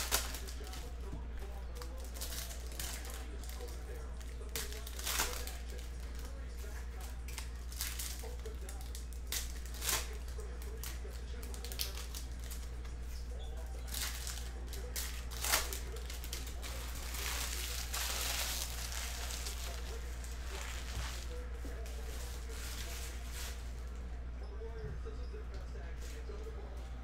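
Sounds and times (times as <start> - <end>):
card pack wrapper crinkling: 0.0 - 0.9, 13.8 - 21.4
wrapper rustling and tearing: 0.0 - 0.9, 1.8 - 12.8, 13.8 - 23.9
steady low hum: 0.0 - 27.0.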